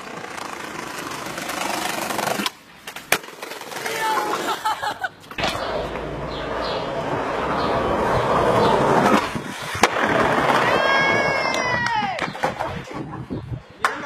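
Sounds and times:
skateboard wheels rolling on paving: 0:00.0 - 0:14.0.

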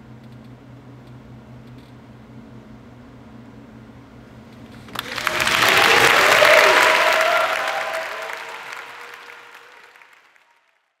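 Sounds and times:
audience cheering: 0:04.9 - 0:10.6
audience applauding: 0:04.9 - 0:11.0.

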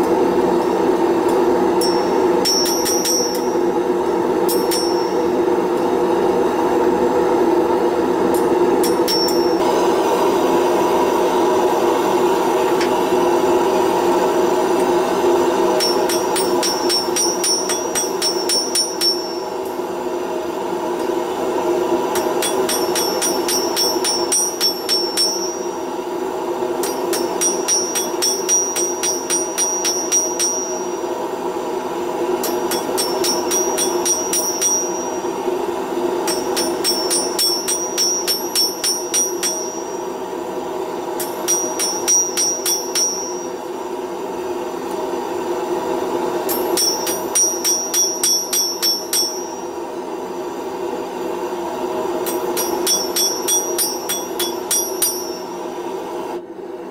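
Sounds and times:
hammer striking steel on anvil: 0:00.0 - 0:06.0, 0:08.3 - 0:09.8, 0:15.6 - 0:19.9, 0:22.1 - 0:26.0, 0:26.7 - 0:31.2, 0:32.3 - 0:35.5, 0:36.2 - 0:40.3, 0:41.1 - 0:43.7, 0:46.4 - 0:49.9, 0:52.2 - 0:55.8
gas burner roaring: 0:00.0 - 0:56.9.

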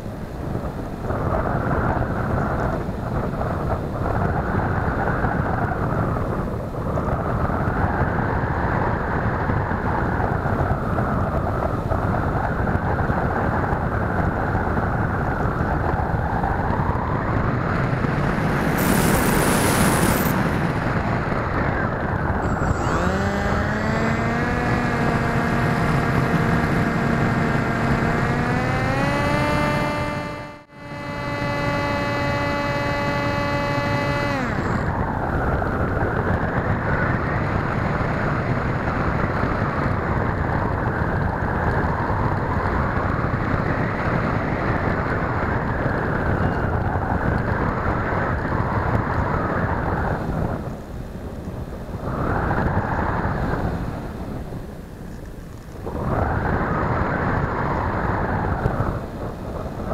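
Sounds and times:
electric motor and propeller whine: 0:03.4 - 0:59.9
air rushing over camera: 0:15.7 - 0:35.8.

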